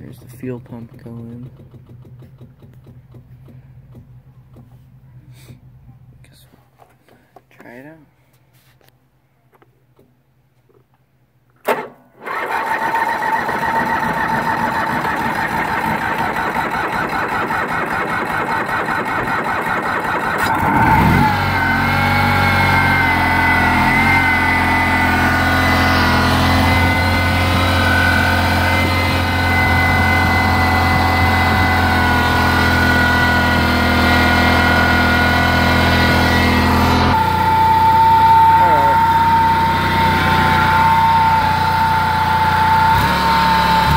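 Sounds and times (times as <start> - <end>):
engine cranking: 0.0 - 4.2, 11.6 - 33.6
engine idling: 12.3 - 43.9.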